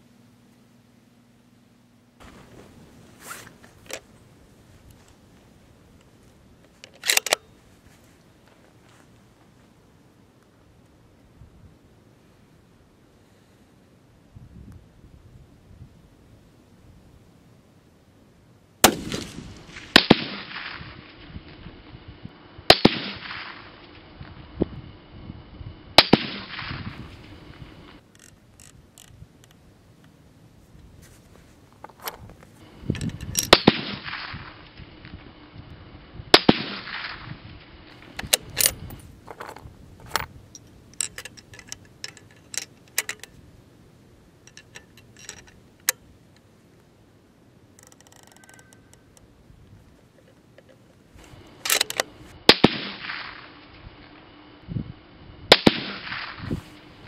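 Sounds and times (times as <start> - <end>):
metallic clicks of rifle handling: 6.0 - 7.5, 28.0 - 30.2, 31.8 - 33.6, 38.0 - 43.4, 44.4 - 46.5, 47.7 - 49.3, 50.1 - 52.1
rifle shots with echo: 18.8 - 20.8, 22.7 - 23.7, 33.5 - 34.3, 36.3 - 37.2, 52.5 - 53.4, 55.5 - 56.4.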